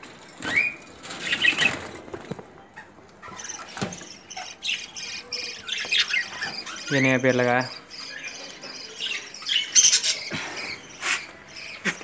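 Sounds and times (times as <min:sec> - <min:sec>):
wings fluttering: 0:00.4 - 0:02.6
budgerigars chirping: 0:02.8 - 0:12.0.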